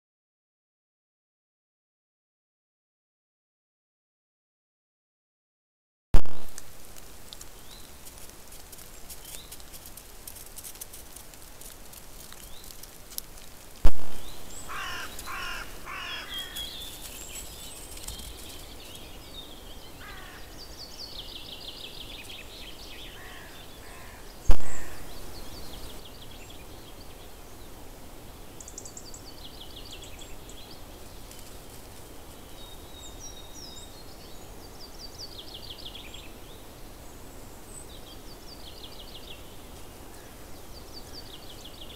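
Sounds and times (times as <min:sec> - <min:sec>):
steady hiss: 0:06.2 - 0:33.2
birds calling: 0:14.1 - 0:27.6.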